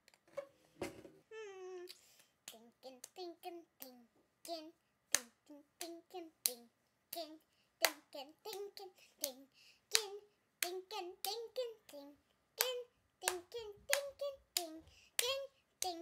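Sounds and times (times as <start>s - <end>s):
girl clapping hands: 3.8s - 12.0s, 12.6s - 16.0s.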